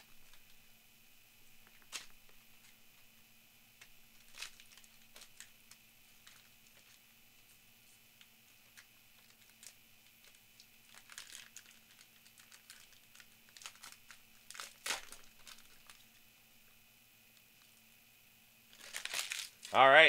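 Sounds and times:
foil wrapper crinkling: 0.0 - 0.7, 1.4 - 3.1, 3.8 - 7.5, 8.2 - 16.3, 18.7 - 19.8.

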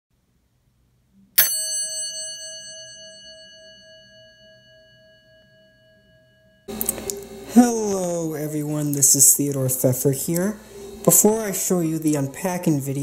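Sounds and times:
elevator gong ding: 1.4 - 6.8.

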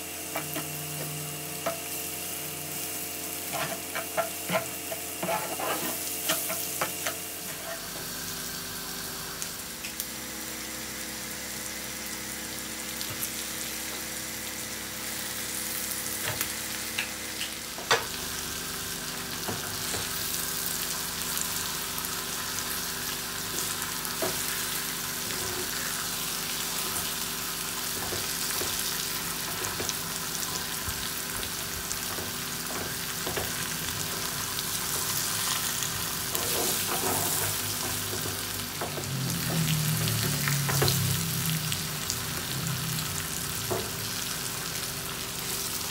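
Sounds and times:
food sizzling in hot oil: 0.0 - 45.9.

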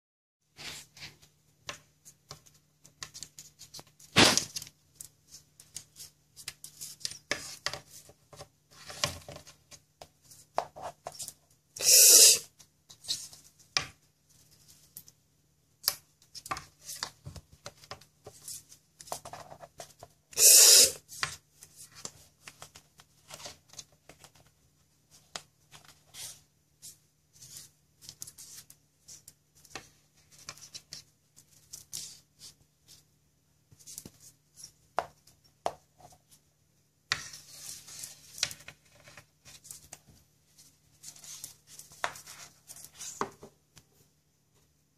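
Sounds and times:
cockatoo harsh sounds: 11.8 - 12.5, 20.3 - 21.0.

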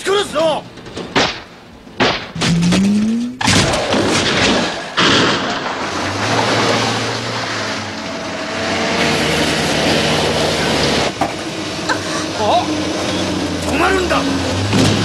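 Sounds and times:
loud thud: 1.1 - 5.8
sharp crack: 1.1 - 7.8
short rising whine: 2.4 - 3.5
engines and tyres rumbling on dirt: 2.4 - 15.0.

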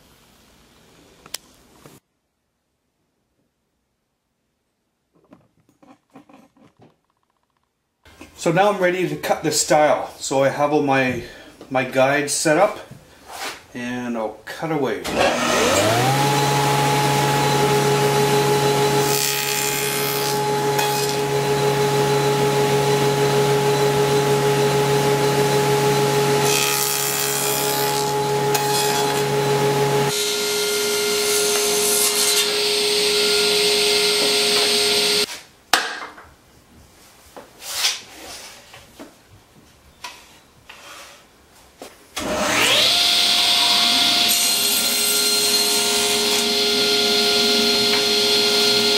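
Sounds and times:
saw cutting wood: 15.1 - 35.3, 42.2 - 48.9
table saw running: 15.1 - 35.3, 42.2 - 48.9.

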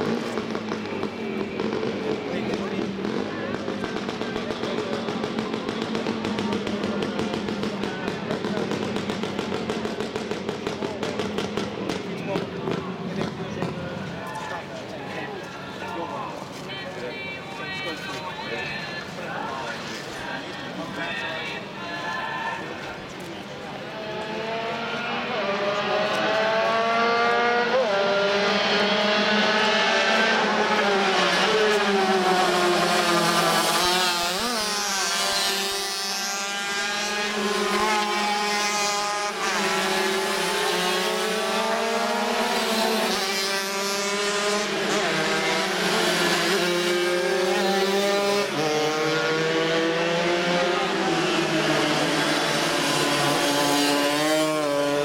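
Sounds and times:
racing motorcycles passing: 0.0 - 16.4, 17.1 - 55.0.

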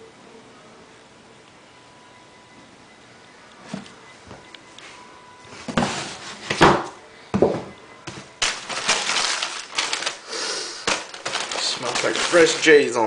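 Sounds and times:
tissue paper crinkling: 8.4 - 13.0.

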